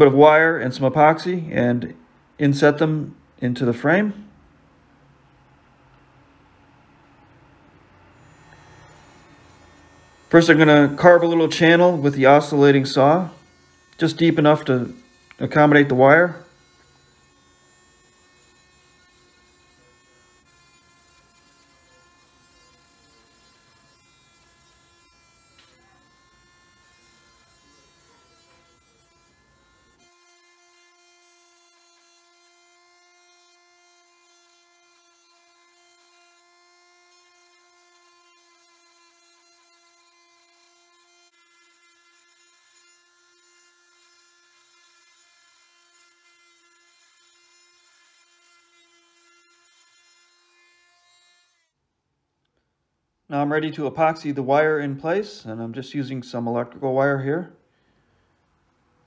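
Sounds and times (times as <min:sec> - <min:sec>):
oscillating multi-tool buzzing: 0:07.3 - 0:51.8.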